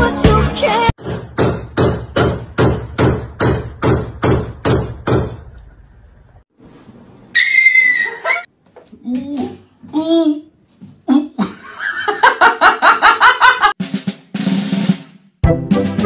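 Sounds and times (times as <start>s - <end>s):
pop music: 0.0s - 1.0s
sharp knocks: 1.4s - 5.4s.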